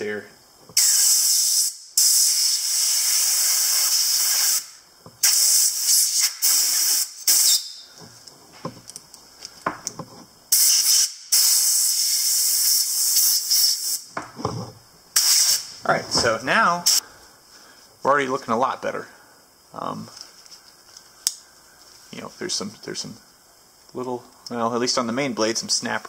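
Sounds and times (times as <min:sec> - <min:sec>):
compressed air blow gun hissing: 0:00.8 - 0:07.9, 0:10.5 - 0:14.2, 0:15.1 - 0:15.8, 0:16.8 - 0:17.1.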